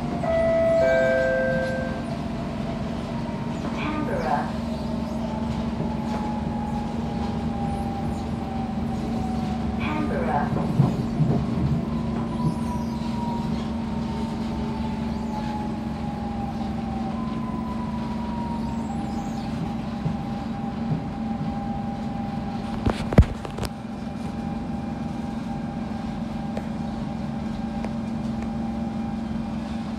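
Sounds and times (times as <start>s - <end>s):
train rumble with motor whine: 0.0s - 29.9s.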